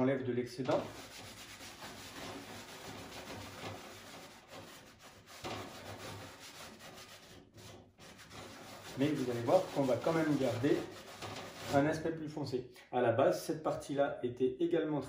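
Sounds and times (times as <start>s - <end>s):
rag rubbing on metal door: 0.6s - 12.1s.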